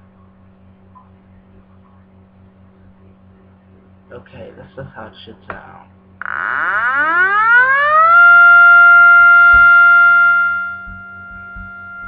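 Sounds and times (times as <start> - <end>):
synthesized siren wail: 6.2 - 12.0.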